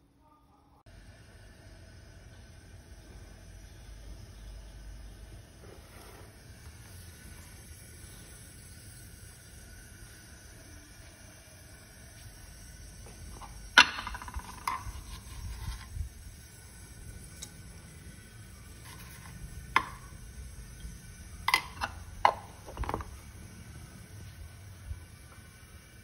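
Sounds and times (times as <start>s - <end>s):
utensils clinking against metal pot: 13.4s - 15.4s, 21.4s - 23.1s.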